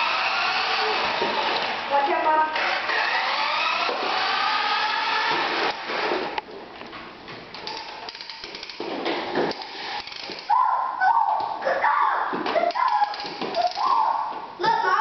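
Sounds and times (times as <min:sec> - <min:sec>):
whirring with wavering pitch: 0:00.0 - 0:01.9, 0:02.5 - 0:06.3
toy rolling on wooden floor: 0:07.6 - 0:10.5.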